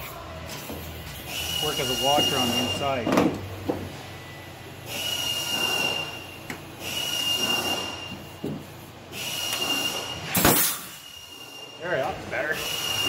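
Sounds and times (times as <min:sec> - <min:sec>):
pneumatic rivet gun hissing: 0:04.9 - 0:06.2, 0:06.8 - 0:08.2, 0:09.1 - 0:11.3.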